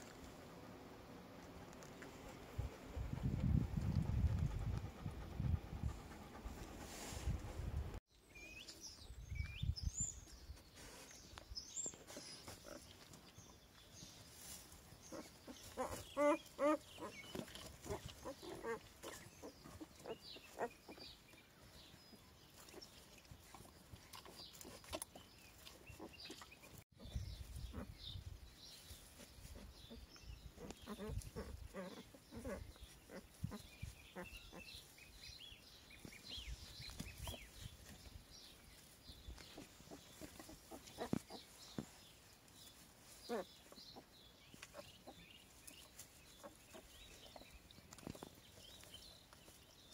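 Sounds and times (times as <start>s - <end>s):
puppies squeaking and grunting: 11.9s - 13.2s, 15.1s - 21.3s, 29.2s - 34.9s, 39.3s - 42.0s.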